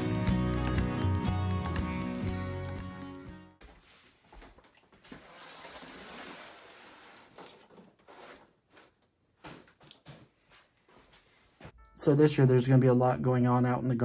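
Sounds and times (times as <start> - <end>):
plastic scraping on plastic: 5.0 - 9.0.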